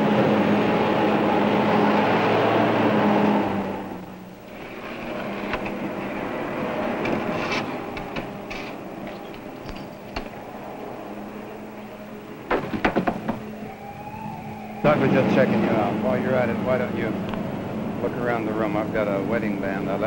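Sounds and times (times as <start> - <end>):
distant traffic noise: 0.0 - 20.0
clicks and knocks: 12.5 - 13.5.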